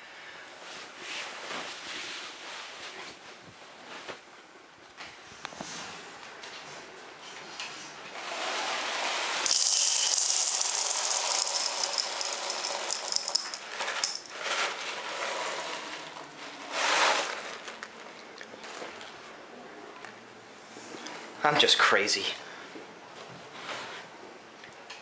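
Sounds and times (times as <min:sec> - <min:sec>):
cereal pouring into bowl: 0:08.5 - 0:17.9.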